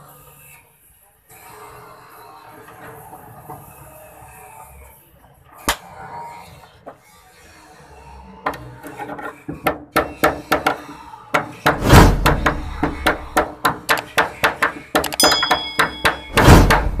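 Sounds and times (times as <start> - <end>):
hammer tapping on metal panel: 9.6 - 16.9
loud rushing burst: 11.8 - 13.3
short high chime: 15.2 - 16.4.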